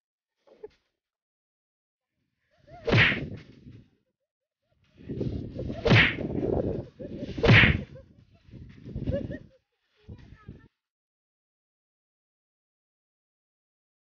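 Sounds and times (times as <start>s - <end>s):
cartoon whip whoosh: 2.8s - 3.5s, 5.7s - 6.5s, 7.2s - 8.0s.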